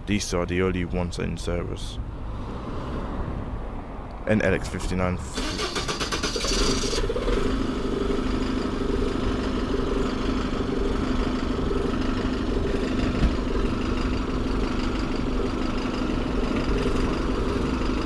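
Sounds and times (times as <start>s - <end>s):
diesel bus engine idling: 5.2s - 18.0s.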